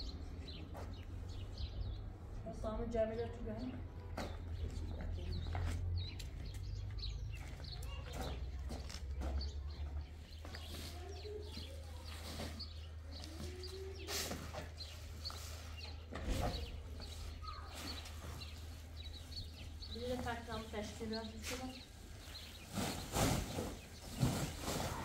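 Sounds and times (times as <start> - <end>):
small birds chirping: 0.0 - 25.0.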